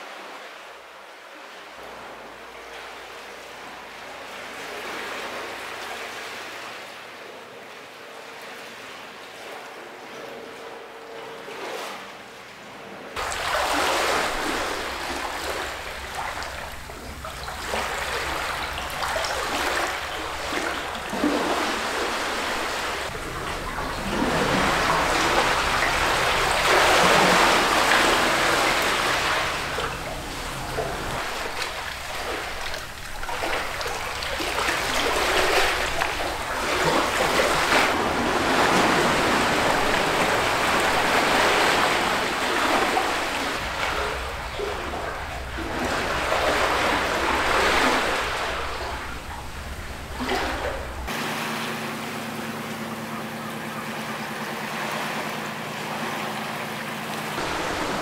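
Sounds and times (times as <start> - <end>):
sea waves washing onto shore: 13.2 - 58.0.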